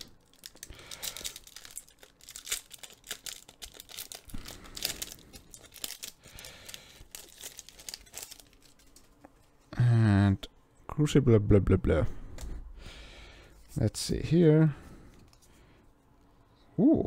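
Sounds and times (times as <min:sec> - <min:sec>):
foil wrapper crinkling and tearing: 0:00.0 - 0:09.3.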